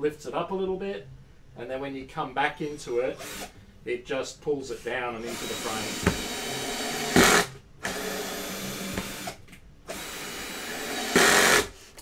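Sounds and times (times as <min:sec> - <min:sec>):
cordless drill running: 0:03.2 - 0:03.5, 0:05.2 - 0:11.8.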